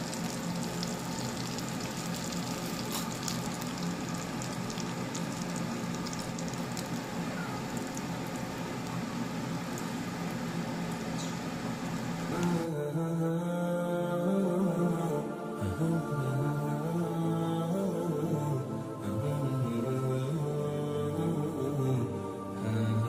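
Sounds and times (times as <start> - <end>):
food sizzling in hot oil: 0.0 - 12.4.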